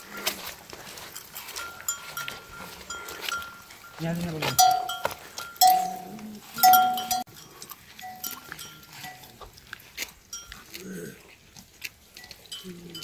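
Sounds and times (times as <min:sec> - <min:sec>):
farm animals calling: 0:00.0 - 0:13.0
metal bell ringing: 0:01.6 - 0:09.3.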